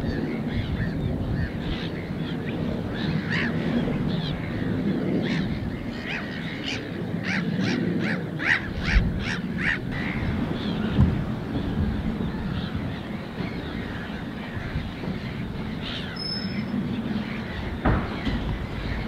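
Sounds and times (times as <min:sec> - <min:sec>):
steady low rumble: 0:00.0 - 0:19.0
waterbirds calling: 0:00.0 - 0:19.0
low thump: 0:17.8 - 0:19.0.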